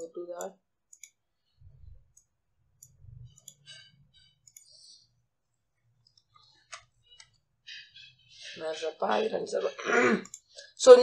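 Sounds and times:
mouse and keyboard clicks: 0.9s - 1.2s, 2.1s - 5.0s
faint low hum: 1.4s - 6.2s.

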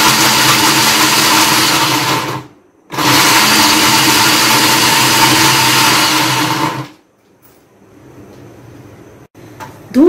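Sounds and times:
food processor motor chopping nuts: 0.0s - 7.0s.

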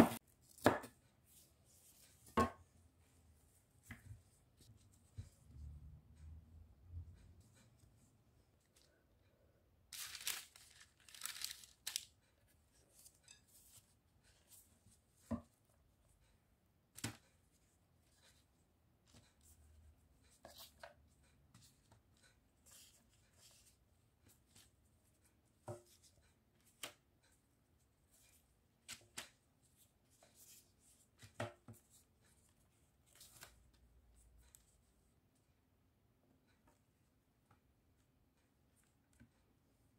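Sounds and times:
parchment paper crinkling: 9.9s - 13.1s.

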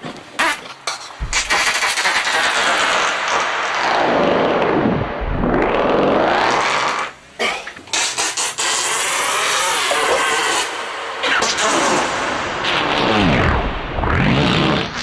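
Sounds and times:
processed farts sweeping in pitch: 1.2s - 7.2s, 11.3s - 15.0s
noisy synth drone: 1.2s - 7.4s.

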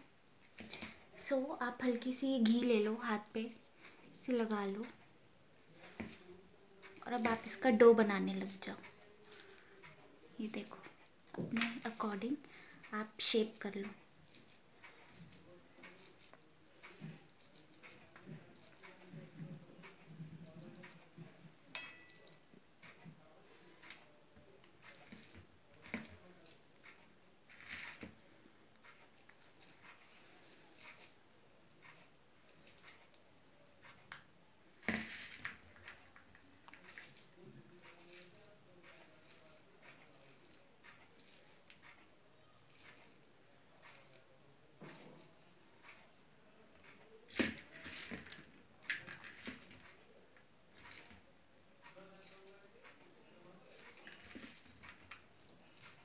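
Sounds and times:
sticky mixture squishing in hands: 0.0s - 56.0s.

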